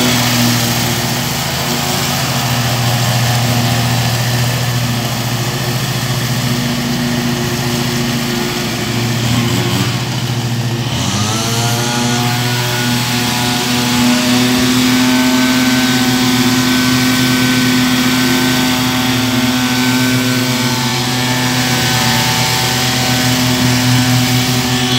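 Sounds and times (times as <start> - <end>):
engine revving: 0.0 - 24.9
lawn mower engine running: 0.0 - 24.9.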